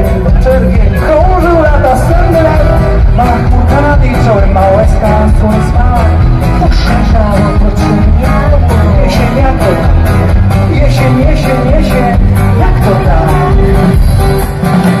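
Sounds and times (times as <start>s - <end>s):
live pop-rock band playing: 0.0s - 15.0s.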